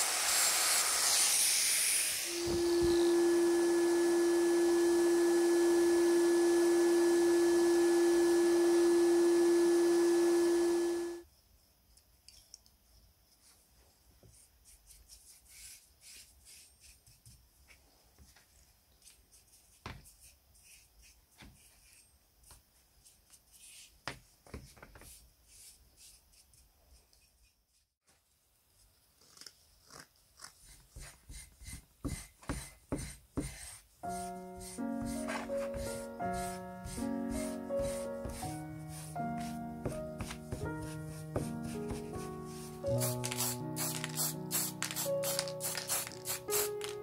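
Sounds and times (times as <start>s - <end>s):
faint hiss: 0.0s - 3.0s, 42.7s - 47.0s
whistle-like tone: 2.2s - 3.9s
soft brush strokes: 33.8s - 46.9s.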